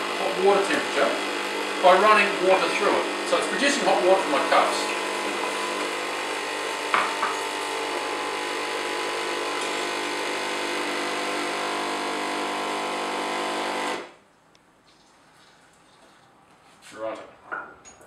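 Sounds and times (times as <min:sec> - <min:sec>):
espresso machine pump running: 0:00.0 - 0:14.2.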